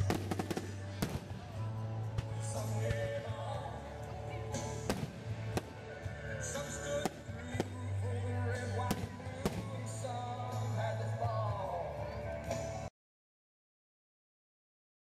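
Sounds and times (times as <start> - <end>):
fireworks banging: 0.0 - 3.0, 8.8 - 10.1
music with singing: 0.0 - 12.9.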